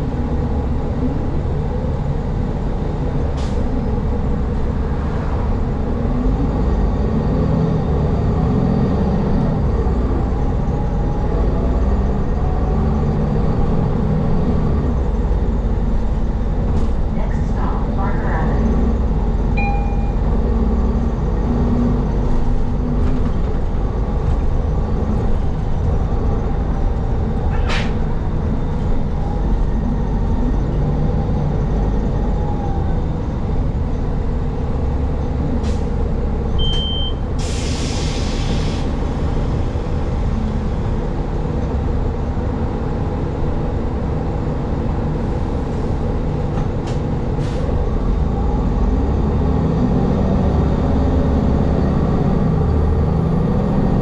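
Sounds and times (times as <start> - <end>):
bus engine rumble: 0.0 - 54.0
short high beep: 19.6 - 20.3, 36.6 - 37.2
air brakes hissing: 37.2 - 39.8, 47.4 - 47.8.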